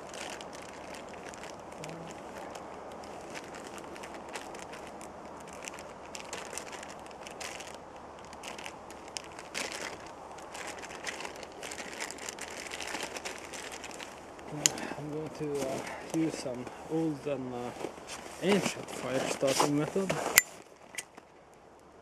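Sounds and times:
plastic bag crinkling: 0.0s - 16.6s.

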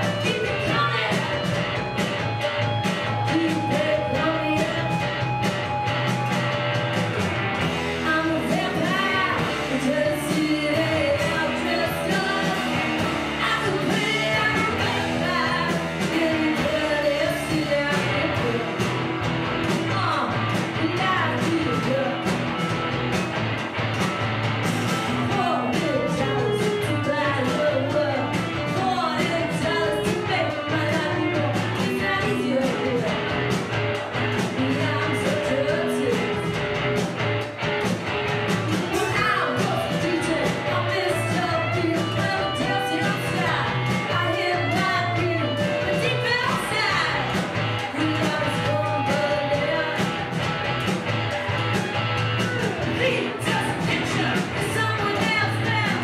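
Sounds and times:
electric guitar: 0.0s - 56.0s
rock band playing live: 0.0s - 56.0s
person singing: 2.6s - 5.1s, 8.0s - 18.8s, 19.8s - 22.4s, 25.2s - 33.4s, 34.4s - 36.6s, 38.7s - 50.4s, 52.6s - 56.0s.

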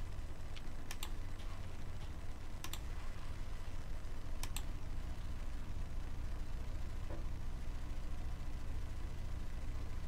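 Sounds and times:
low hum: 0.0s - 10.0s
computer mouse clicks: 0.5s - 1.5s, 2.6s - 2.9s, 4.4s - 4.7s.

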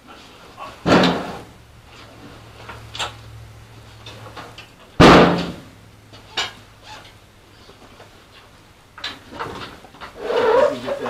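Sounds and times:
metal hood bang: 0.8s - 1.5s, 5.0s - 5.7s.

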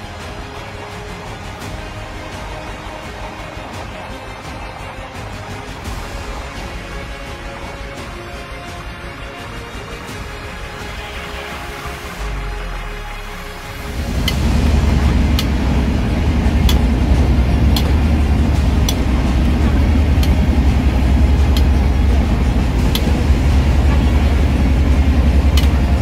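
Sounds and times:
train rumbling: 0.0s - 26.0s.

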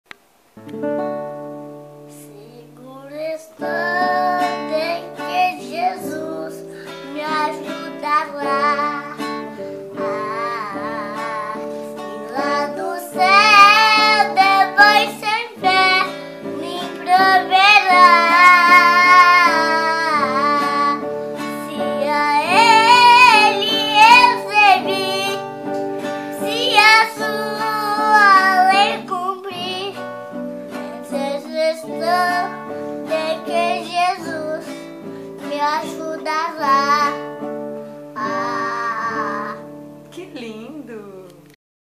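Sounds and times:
boy singing a hymn: 2.1s - 25.6s, 26.3s - 30.0s, 30.8s - 37.3s, 38.2s - 39.7s
held accompaniment chords: 3.6s - 35.7s.

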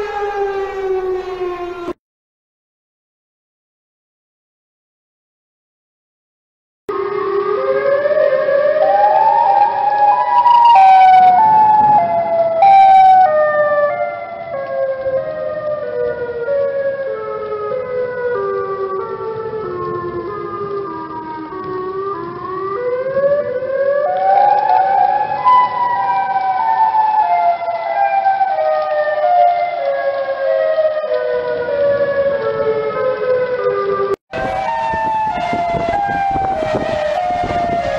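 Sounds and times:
tornado warning siren wailing: 0.0s - 2.0s, 6.9s - 37.9s.

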